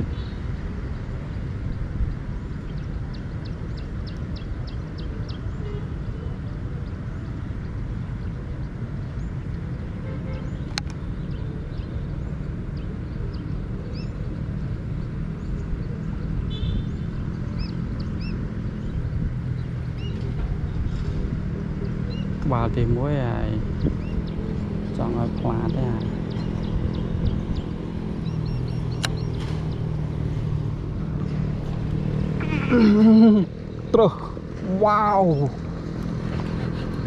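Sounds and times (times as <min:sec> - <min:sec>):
wind rumbling on microphone: 0:00.0 - 0:37.0
high bird chirps: 0:23.8 - 0:30.0
sharp click: 0:28.9 - 0:29.6.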